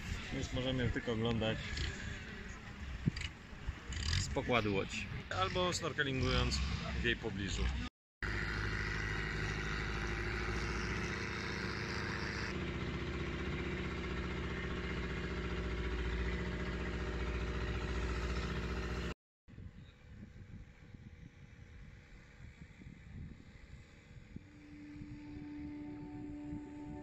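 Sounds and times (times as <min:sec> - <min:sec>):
faint wind: 0:00.0 - 0:27.0
boat engine running: 0:08.2 - 0:19.2, 0:21.6 - 0:27.0.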